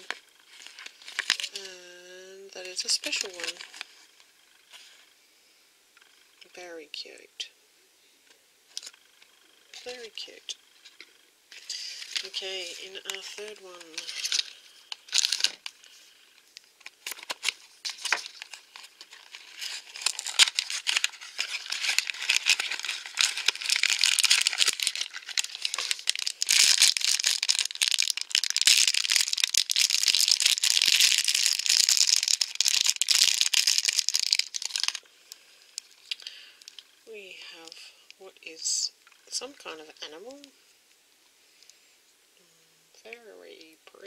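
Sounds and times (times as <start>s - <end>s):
plastic packaging crinkling and tearing: 0.0s - 1.7s, 2.6s - 4.0s, 11.5s - 16.0s, 16.6s - 35.0s.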